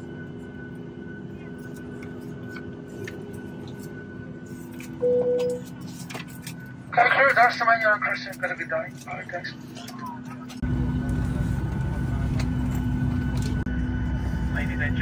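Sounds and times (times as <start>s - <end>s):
airplane cabin hum: 0.0s - 15.0s.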